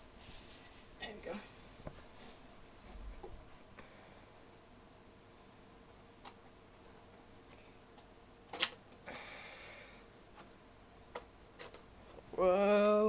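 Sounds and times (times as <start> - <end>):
plastic catches clicking: 8.0 - 8.9
person exclaiming: 12.4 - 13.0.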